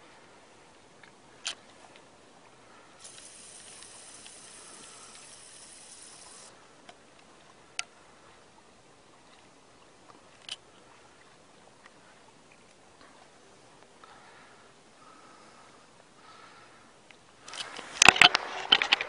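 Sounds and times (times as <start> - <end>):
water lapping: 0.1 - 18.0
water rushing hiss: 3.0 - 6.6.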